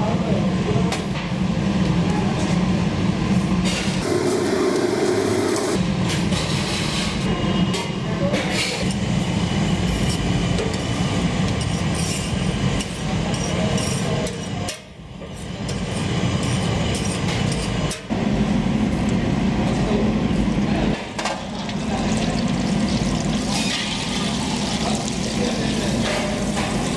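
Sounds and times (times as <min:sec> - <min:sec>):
gas burners roaring: 0:00.6 - 0:06.2, 0:14.7 - 0:26.9.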